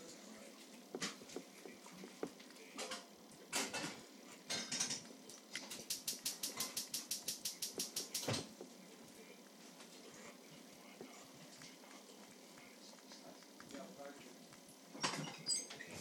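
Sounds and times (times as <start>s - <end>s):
dog crunching food: 11.2s - 15.0s.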